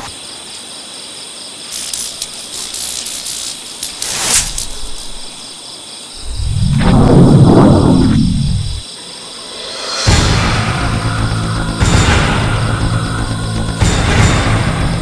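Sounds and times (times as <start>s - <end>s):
night insects trilling: 0.0s - 15.0s
loud low drone: 6.2s - 8.8s, 9.9s - 15.0s
short whoosh: 6.2s - 8.8s.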